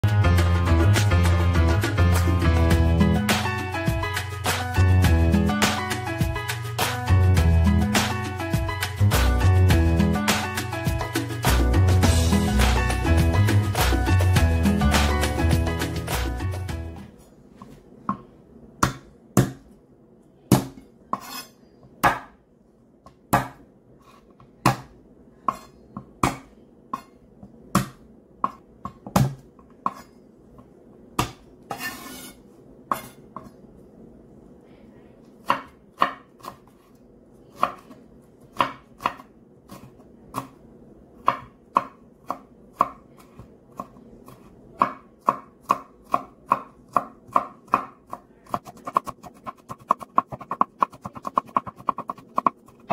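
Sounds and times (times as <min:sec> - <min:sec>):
knife chopping on wooden board: 0:18.1 - 0:19.7, 0:22.0 - 0:22.4, 0:23.3 - 0:23.6, 0:24.6 - 0:24.9, 0:38.5 - 0:40.5.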